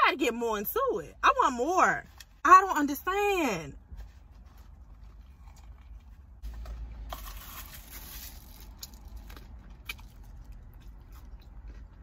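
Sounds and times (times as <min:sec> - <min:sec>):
paper wrapper rustling: 0:07.1 - 0:09.2.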